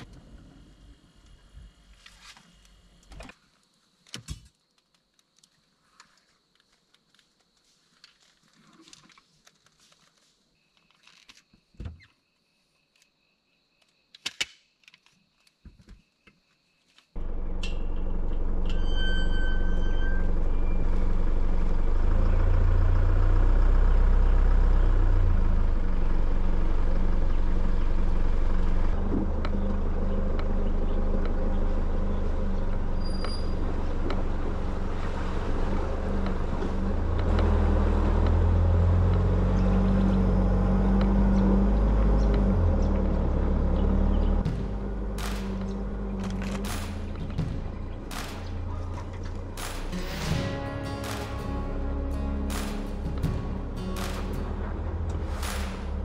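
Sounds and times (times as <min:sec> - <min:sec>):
vehicle engine and road noise: 0:00.0 - 0:03.4, 0:17.1 - 0:56.0.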